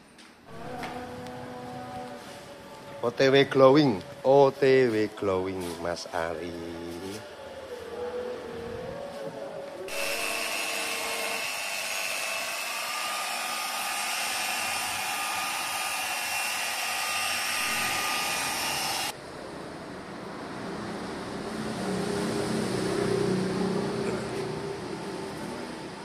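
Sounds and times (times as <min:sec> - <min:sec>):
electric polisher motor whining: 0:09.9 - 0:19.2.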